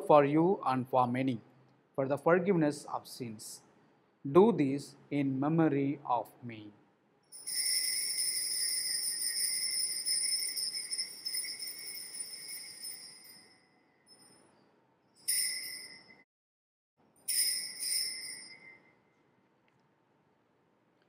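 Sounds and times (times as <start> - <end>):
altar bells jingling: 7.4 - 14.5, 15.2 - 16.2, 17.3 - 18.9.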